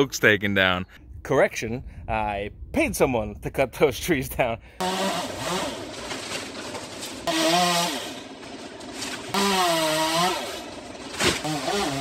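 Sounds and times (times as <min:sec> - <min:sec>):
chainsaw revving and cutting wood: 0:04.8 - 0:12.0.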